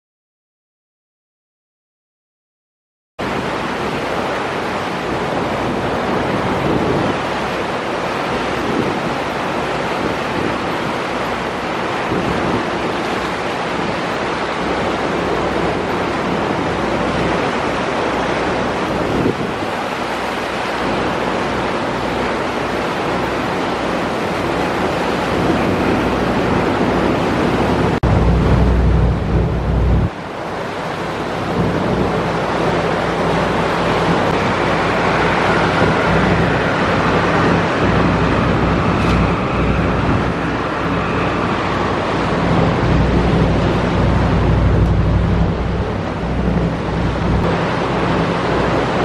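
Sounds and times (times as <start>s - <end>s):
water rushing past boat hull: 3.2s - 49.0s
wind buffeting microphone: 3.2s - 49.0s
low engine drone: 27.1s - 30.5s, 31.6s - 49.0s.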